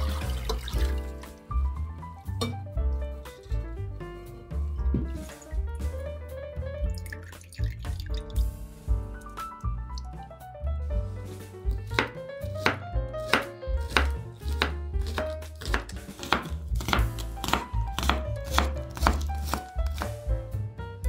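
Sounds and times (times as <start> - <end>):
background music: 0.0 - 21.0
knife slicing on wooden board: 11.8 - 20.2.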